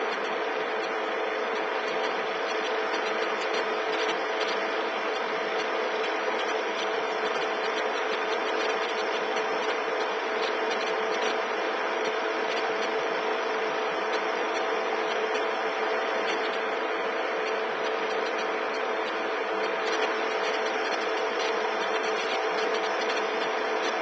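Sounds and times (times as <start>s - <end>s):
machine whirring steadily: 0.0s - 24.0s.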